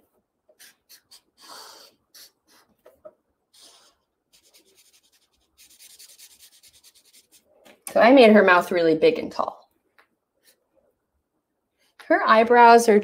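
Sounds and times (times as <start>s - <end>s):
marker scratching on paper: 0.5s - 2.9s, 3.5s - 7.5s.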